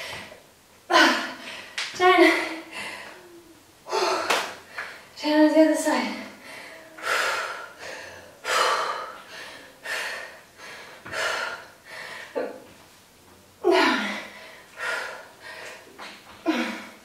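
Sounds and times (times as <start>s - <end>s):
woman breathing hard: 2.4s - 5.1s, 6.3s - 12.4s, 13.7s - 17.0s.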